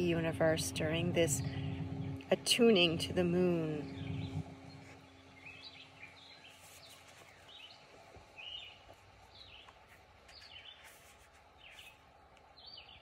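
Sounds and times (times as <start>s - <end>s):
quiet outdoor background noise: 0.0s - 13.0s
soft handling sound: 6.5s - 12.1s.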